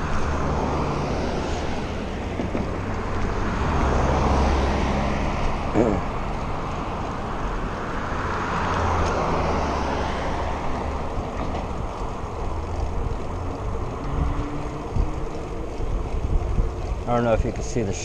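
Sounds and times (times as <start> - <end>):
wind rushing over microphone: 0.0 - 5.7, 6.8 - 18.0
passing car: 0.0 - 18.0.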